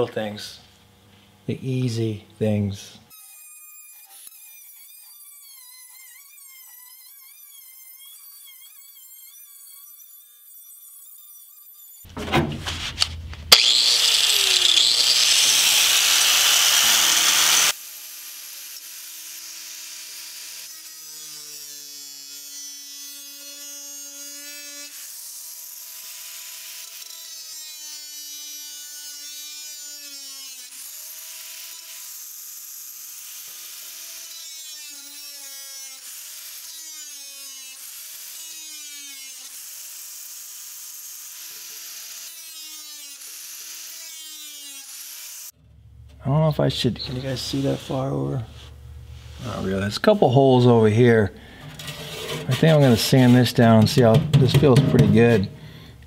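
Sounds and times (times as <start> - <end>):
angle grinder grinding metal: 3.1 - 45.6, 46.6 - 56.0.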